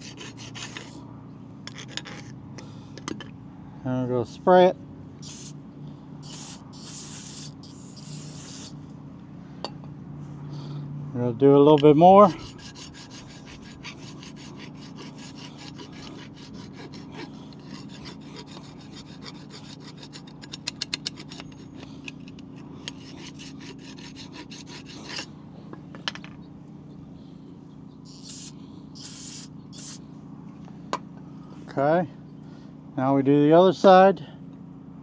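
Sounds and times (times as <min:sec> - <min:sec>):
hand file rasping on metal: 0:00.0 - 0:01.0, 0:06.2 - 0:08.7, 0:12.2 - 0:25.3, 0:28.1 - 0:30.0
short spray hisses: 0:05.2 - 0:05.6, 0:06.2 - 0:08.8, 0:28.1 - 0:30.0.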